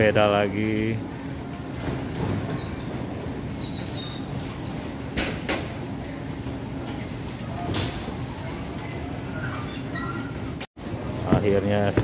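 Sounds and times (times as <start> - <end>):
conveyor belt rumble: 0.0 - 12.0
faint squeaks: 0.8 - 5.2, 6.8 - 10.6.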